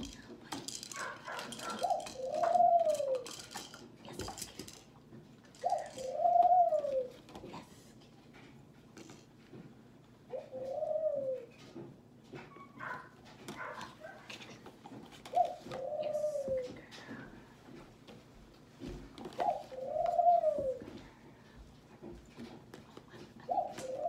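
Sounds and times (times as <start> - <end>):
plastic rings clicking together: 0.0 - 4.9
long cooing calls: 1.6 - 3.3, 5.6 - 7.2, 10.3 - 11.6, 15.3 - 17.3, 19.3 - 21.4, 23.4 - 24.0.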